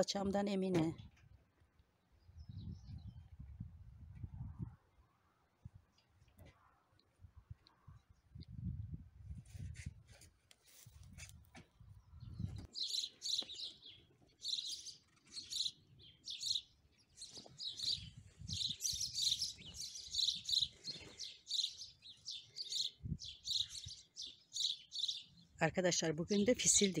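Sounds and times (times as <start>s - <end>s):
songbirds chirping: 11.7s - 27.0s.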